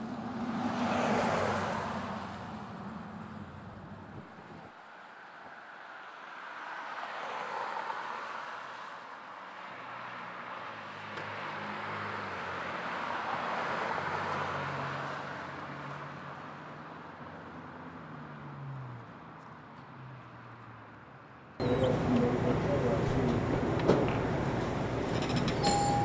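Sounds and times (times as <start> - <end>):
cars passing on wet road: 0.0 - 3.8, 4.7 - 17.0, 21.6 - 25.6
low steady engine hum: 21.6 - 26.0.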